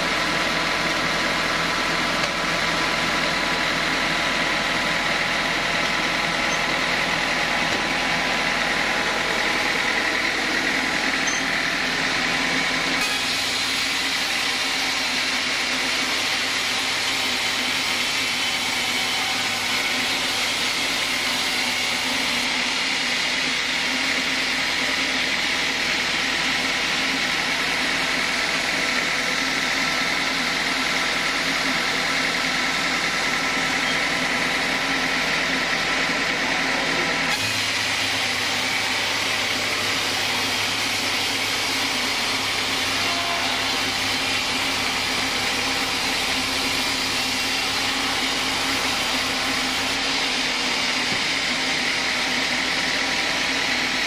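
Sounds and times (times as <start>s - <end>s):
band sawmill running: 0.0s - 54.0s.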